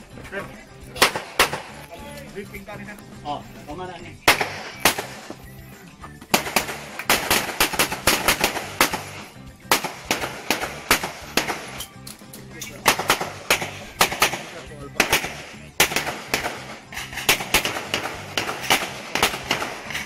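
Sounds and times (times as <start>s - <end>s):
background music: 0.0s - 20.0s
pistol shots: 1.0s - 1.8s, 4.2s - 5.4s, 6.3s - 11.9s, 12.8s - 20.0s.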